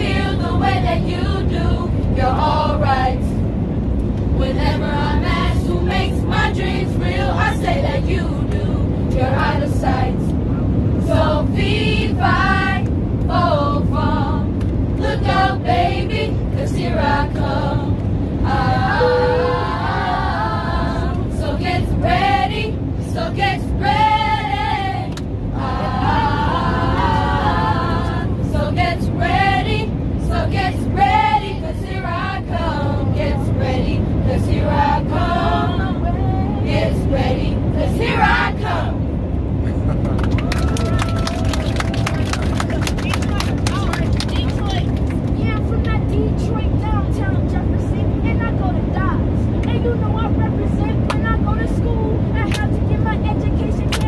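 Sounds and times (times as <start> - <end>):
airliner cabin drone: 0.0 - 54.0
young voices singing: 4.4 - 10.3, 11.0 - 39.0
aircraft cabin noise: 35.9 - 54.0.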